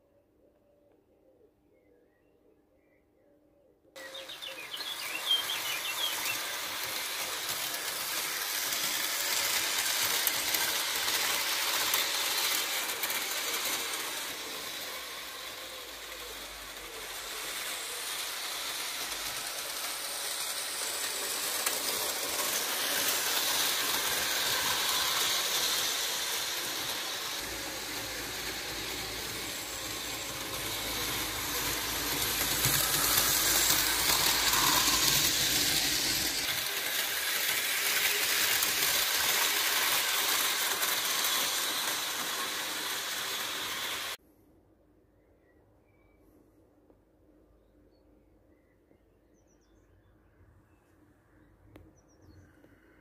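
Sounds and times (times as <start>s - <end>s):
model train wheels rattling on rails: 4.0s - 44.2s.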